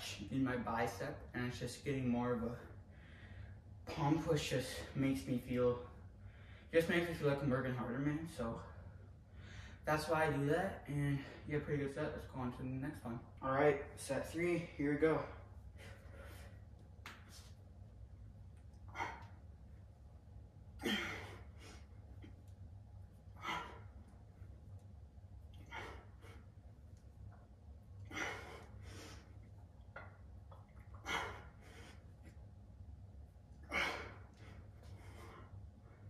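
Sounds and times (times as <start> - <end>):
steady low hum: 0.0 - 36.0
man exhaling forcefully: 20.8 - 21.8.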